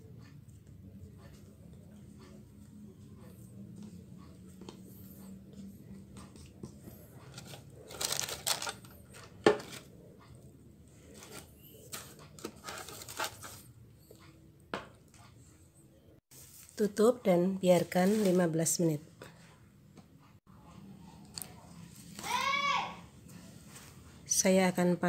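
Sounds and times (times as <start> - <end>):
baking paper crinkling: 7.3 - 9.9, 11.2 - 13.7, 17.8 - 18.6.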